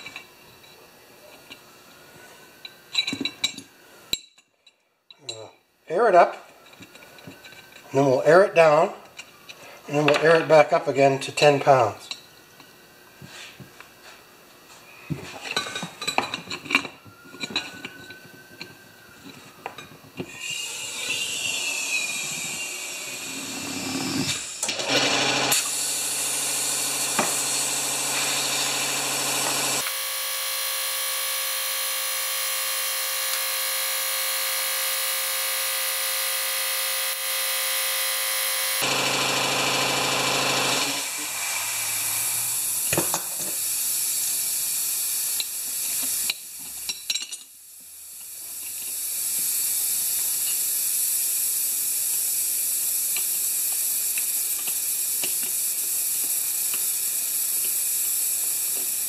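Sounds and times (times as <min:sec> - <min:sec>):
compressed air hissing into tire: 0:20.3 - 0:24.7, 0:40.9 - 0:46.8, 0:47.8 - 0:59.0.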